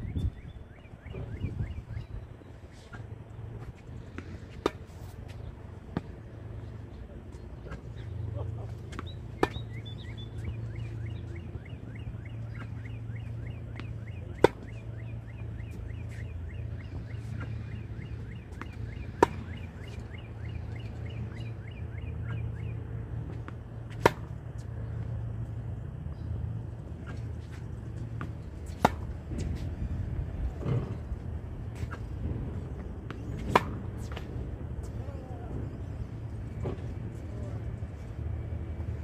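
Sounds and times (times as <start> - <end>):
steady low hum: 0.0 - 39.0
racket hitting tennis ball: 3.6 - 5.2, 8.8 - 9.8, 12.6 - 14.8, 17.3 - 20.0, 23.4 - 24.4, 27.0 - 29.7, 33.0 - 34.4.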